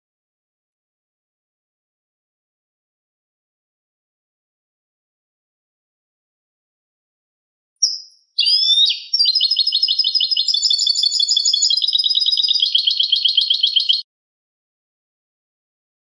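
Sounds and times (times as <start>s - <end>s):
goldfinch singing: 7.8s - 14.0s.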